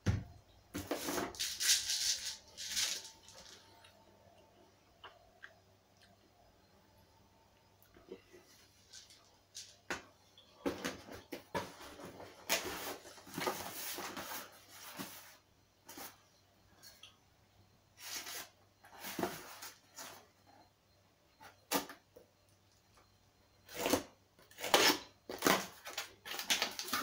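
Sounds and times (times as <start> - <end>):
cardboard boxes rustling: 10.6 - 16.2.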